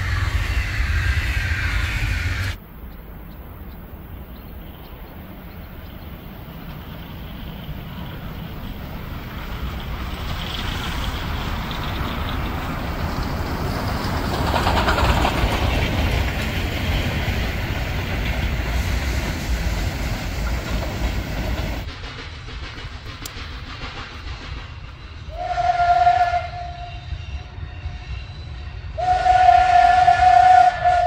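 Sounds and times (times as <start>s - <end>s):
steam locomotive whistle: 0.0s - 2.6s, 25.2s - 31.0s
train wheels rumbling on track: 0.0s - 31.0s.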